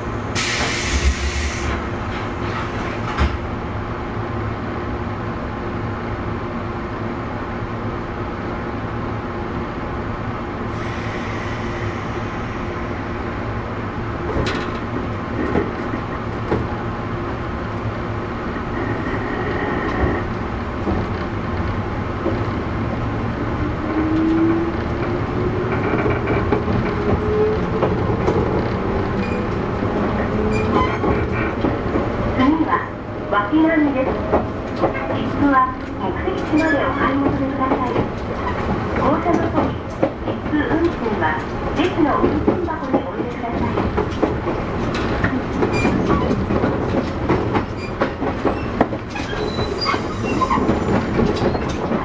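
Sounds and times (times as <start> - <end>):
train running rumble: 0.0 - 52.0
short air hisses: 0.4 - 1.8, 10.7 - 13.0
rail-joint clicks: 14.3 - 16.7, 24.1 - 32.1, 34.0 - 52.0.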